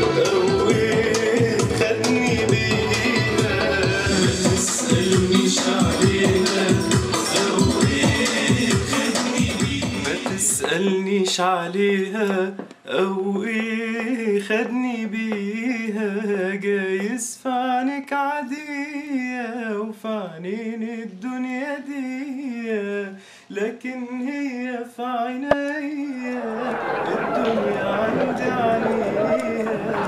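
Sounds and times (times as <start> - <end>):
man singing unaccompanied: 0.0 - 30.0
breaths between phrases: 23.2 - 23.5.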